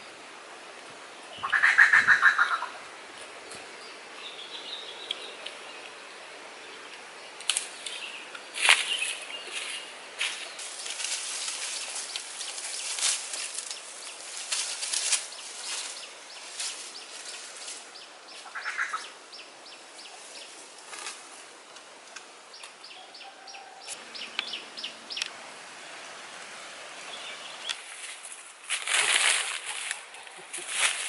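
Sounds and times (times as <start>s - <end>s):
footsteps crunching through dry leaves: 7.5s - 18.8s, 27.7s - 31.0s
sharp crackles: 8.6s - 17.8s.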